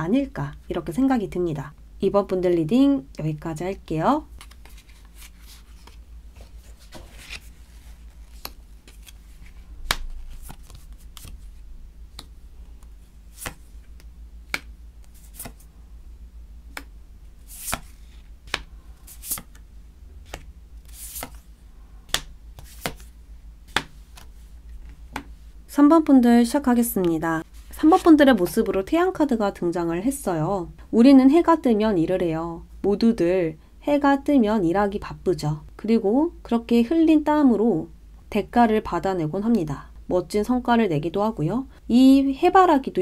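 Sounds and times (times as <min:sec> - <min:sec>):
cards sliding on cards: 0:04.4 - 0:11.4, 0:12.2 - 0:15.7, 0:16.7 - 0:19.6, 0:20.2 - 0:21.5, 0:22.1 - 0:25.5
cards tapping on tabletop: 0:23.7 - 0:24.3.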